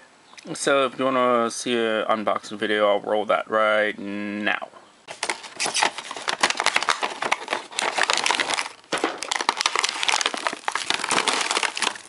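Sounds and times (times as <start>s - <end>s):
plastic bags crinkling: 5.1s - 12.0s.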